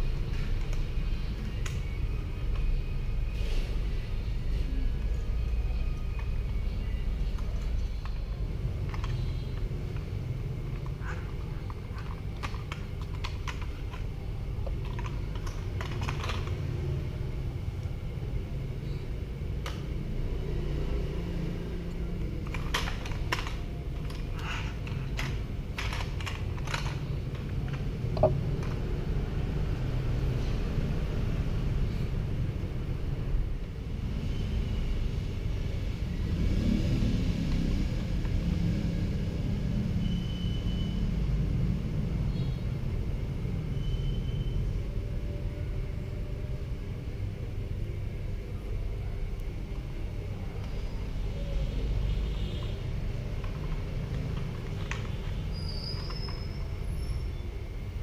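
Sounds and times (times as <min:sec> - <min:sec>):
plastic toy parts clicking: 0:07.4 - 0:16.6, 0:22.4 - 0:28.8.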